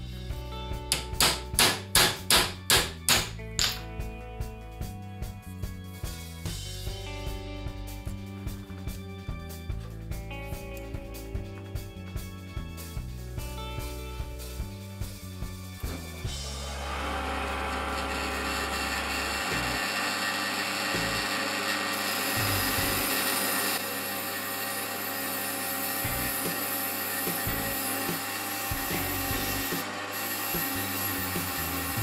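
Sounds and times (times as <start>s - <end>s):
drill press motor running: 15.9s - 32.0s
buffing wheel scouring metal: 21.9s - 32.0s.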